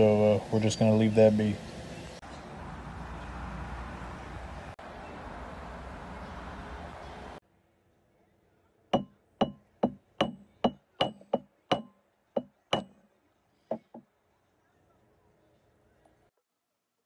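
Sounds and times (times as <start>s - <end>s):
hammer striking metal on anvil: 9.0s - 13.0s.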